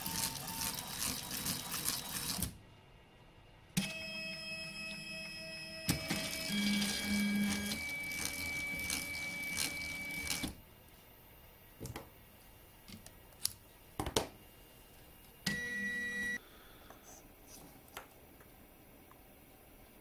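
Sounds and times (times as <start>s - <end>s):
tape-winding machine whine: 3.8s - 10.6s.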